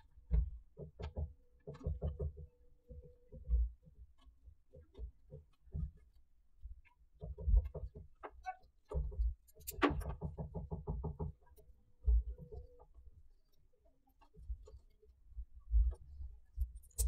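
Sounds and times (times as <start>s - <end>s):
rapid ticks: 0.4s - 17.0s
hands twisting wire on tabletop: 9.4s - 10.4s, 16.6s - 17.0s.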